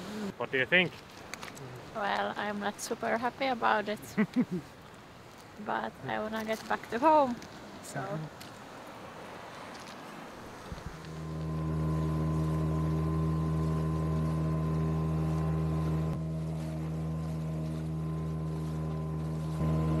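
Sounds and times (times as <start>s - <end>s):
outboard motor running: 10.8s - 20.0s.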